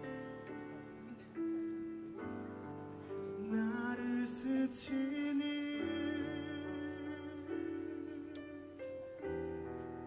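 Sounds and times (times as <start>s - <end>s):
man singing with vibrato: 3.4s - 8.7s.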